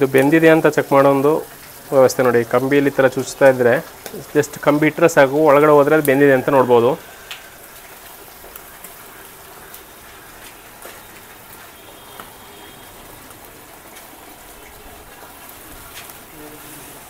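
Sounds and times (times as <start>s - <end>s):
chicken sizzling over charcoal: 0.0s - 17.0s
small crackles: 1.4s - 5.0s, 7.0s - 17.0s.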